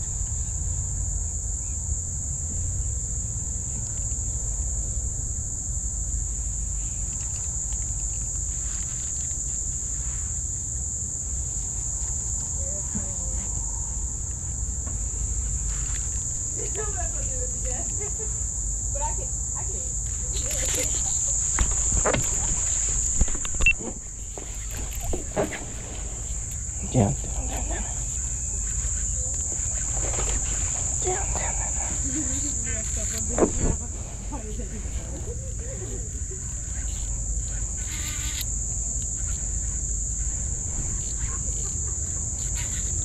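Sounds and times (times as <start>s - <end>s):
high-pitched insect chorus: 0.0s - 43.0s
wind rumble on microphone: 29.1s - 36.0s
wind on microphone: 31.9s - 35.2s.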